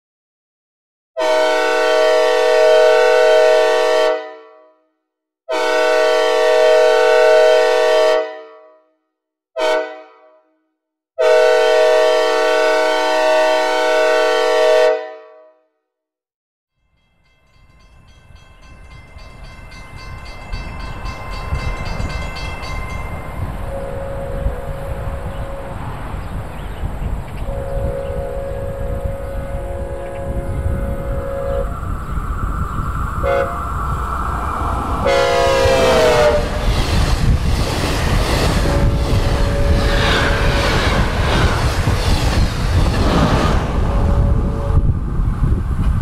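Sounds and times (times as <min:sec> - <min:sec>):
locomotive air horn blasts with reverb: 0:01.2 - 0:04.9, 0:05.5 - 0:09.0, 0:09.6 - 0:10.6, 0:11.2 - 0:15.6, 0:23.6 - 0:25.8, 0:27.4 - 0:31.8, 0:33.2 - 0:33.8, 0:35.0 - 0:36.7, 0:38.5 - 0:41.6, 0:43.8 - 0:44.9
low rumble of approaching train: 0:16.8 - 0:46.0.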